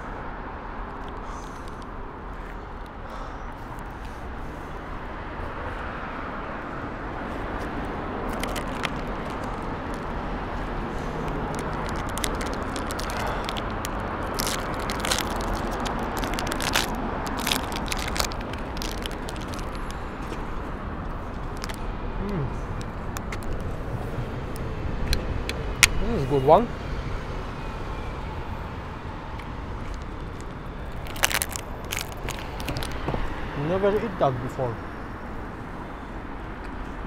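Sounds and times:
street traffic hum: 0.0 - 37.0
snack wrapper crinkling: 8.3 - 10.2, 11.2 - 20.0, 21.4 - 21.8, 29.8 - 33.1.

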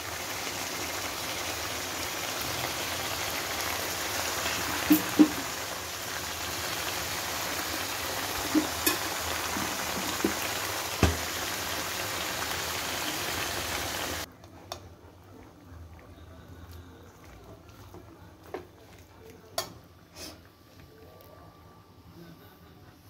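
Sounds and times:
food sizzling in a pan: 0.0 - 14.3.

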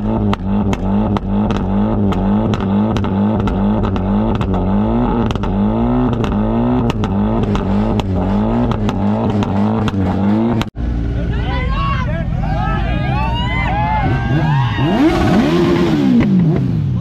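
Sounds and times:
car engine revving: 0.0 - 11.4, 12.2 - 17.0
exhaust cracks: 0.0 - 11.4.

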